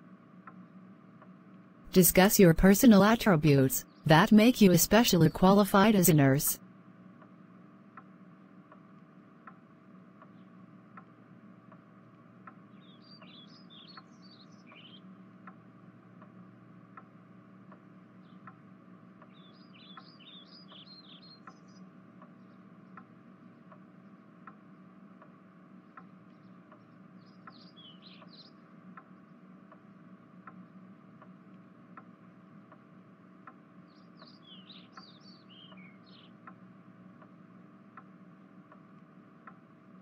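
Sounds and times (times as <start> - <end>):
steady low hum: 0.0 - 40.0
regular light tick: 0.4 - 6.2, 7.2 - 40.0
faint bird chirps: 12.7 - 15.2, 19.2 - 23.7, 26.3 - 28.6, 33.9 - 36.4.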